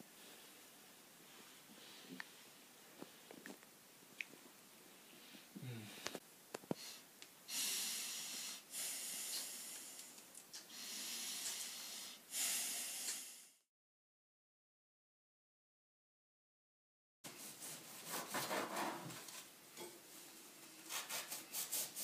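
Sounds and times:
person breathing deeply: 5.1 - 6.2, 6.8 - 13.6.

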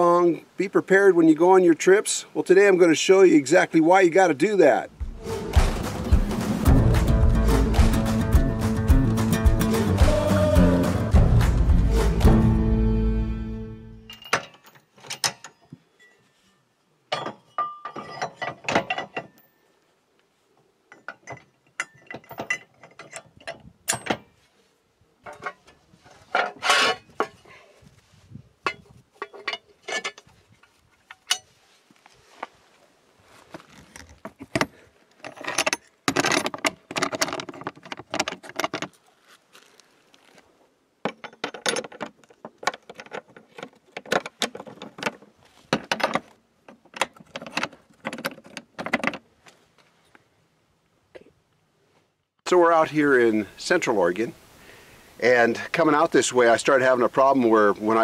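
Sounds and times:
metal lock clicks and clinks: 14.1 - 16.1, 20.9 - 24.3.

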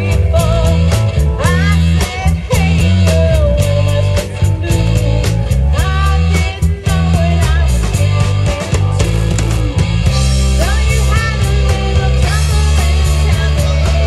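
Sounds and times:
woman singing: 0.0 - 9.3, 10.5 - 14.0
bass guitar: 0.0 - 14.0
drum kit: 0.0 - 14.0
electric guitar: 0.0 - 14.0.

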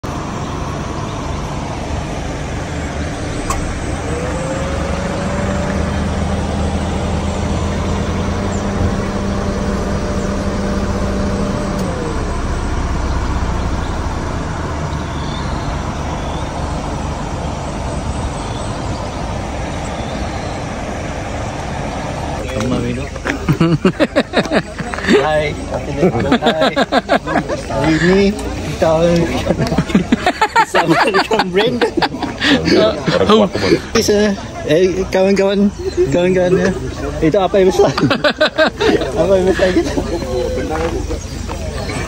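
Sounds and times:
rising whine: 0.0 - 23.7
vehicle road and engine rumble: 0.0 - 42.0.

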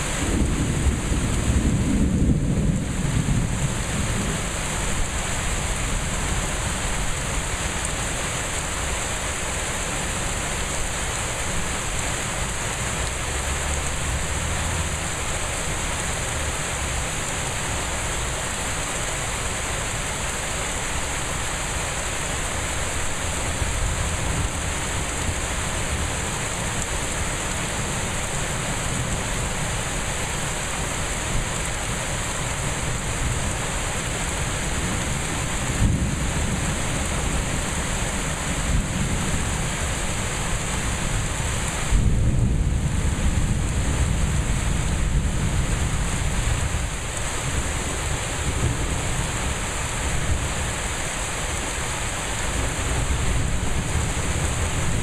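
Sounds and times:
low thunder rumbling: 0.0 - 6.6, 34.7 - 40.2, 41.2 - 50.6, 52.4 - 55.0
heavy rain pouring: 0.0 - 55.0.

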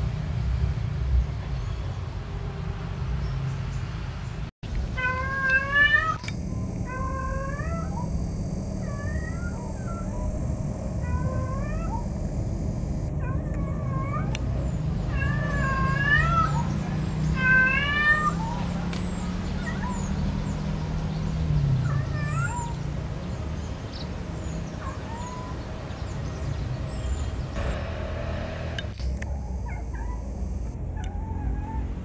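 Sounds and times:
cat meowing: 5.0 - 14.3, 15.1 - 16.7, 17.4 - 18.6.

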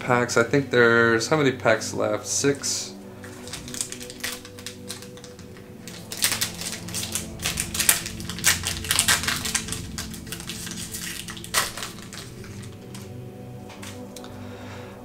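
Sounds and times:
foil pack crinkling and ripping: 3.1 - 14.3.

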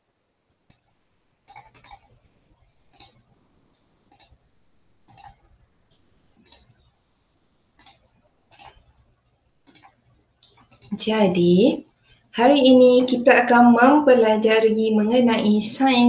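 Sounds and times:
computer mouse clicking: 0.7 - 3.4, 4.1 - 6.9, 7.8 - 11.0.

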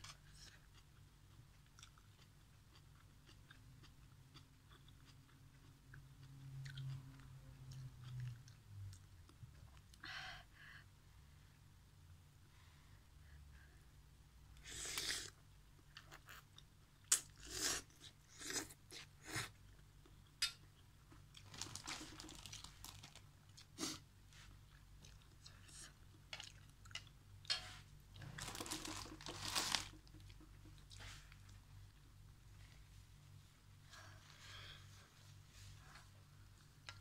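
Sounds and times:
close chewing of food: 0.0 - 10.0, 14.7 - 32.7
paper tissue rustling: 21.4 - 23.2, 28.3 - 30.2.

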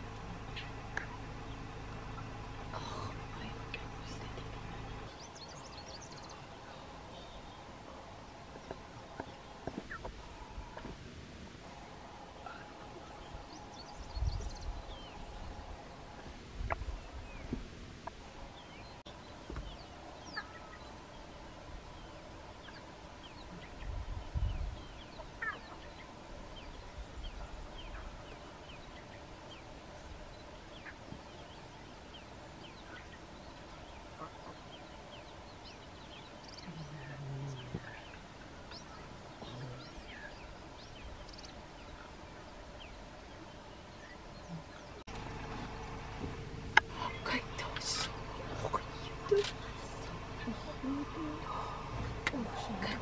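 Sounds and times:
faint steady hum: 0.0 - 53.0
low rumbles: 0.0 - 53.0
bird chirps: 0.3 - 7.7.

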